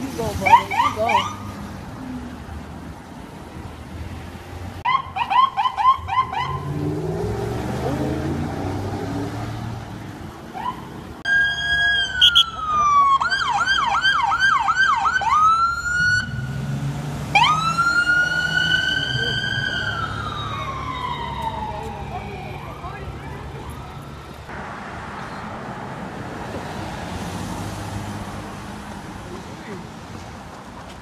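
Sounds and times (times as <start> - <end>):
passing traffic rumble: 0.0 - 31.0
police sirens: 0.3 - 1.5, 4.8 - 9.3, 10.5 - 24.5.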